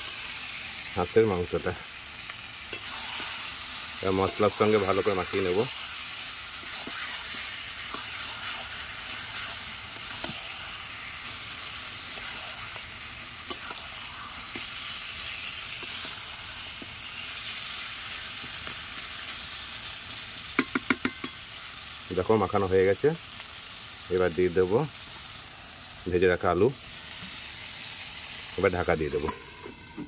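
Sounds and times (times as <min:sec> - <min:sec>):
meat sizzling in a wok: 0:00.0 - 0:30.0
metal spatula stirring: 0:02.6 - 0:12.8, 0:13.4 - 0:14.9, 0:15.7 - 0:16.2.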